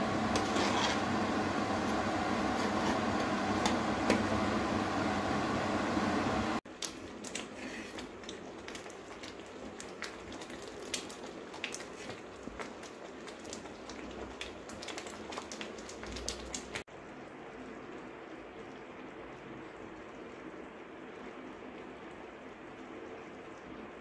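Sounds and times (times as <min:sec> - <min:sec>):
jam bubbling and popping: 0:06.6 - 0:24.0.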